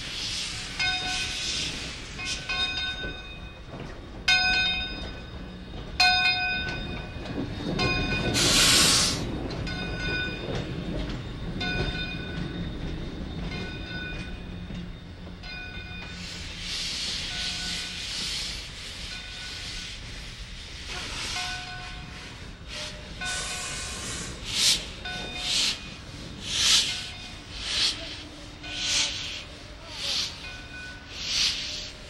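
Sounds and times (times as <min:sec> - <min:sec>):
steam hissing: 0:00.0 - 0:02.7, 0:08.2 - 0:09.4, 0:16.1 - 0:32.0
steam locomotive rumble: 0:00.0 - 0:32.0.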